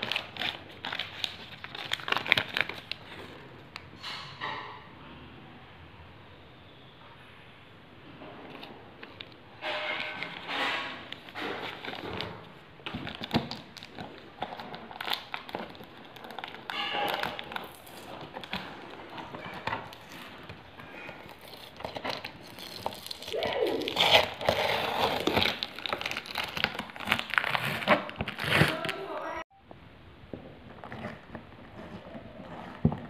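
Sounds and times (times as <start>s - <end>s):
paper and plastic crinkling: 0.0s - 4.2s, 8.4s - 29.4s
tape and cardboard tearing: 9.7s - 29.2s.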